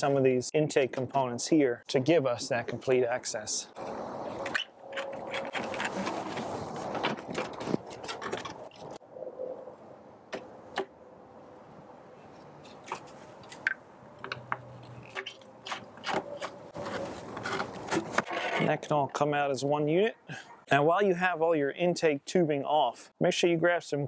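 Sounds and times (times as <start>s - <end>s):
plastic tubing rubbing and scraping: 4.4s - 9.0s, 14.8s - 18.8s.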